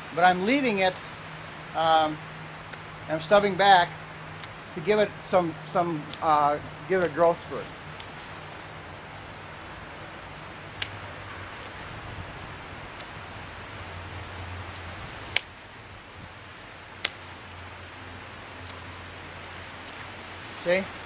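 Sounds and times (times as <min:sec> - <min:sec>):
steady low hiss: 0:00.0 - 0:21.0
pruning shears snipping: 0:04.3 - 0:04.9, 0:06.0 - 0:08.4, 0:10.7 - 0:11.9, 0:12.8 - 0:15.8, 0:16.6 - 0:17.5, 0:18.5 - 0:20.2.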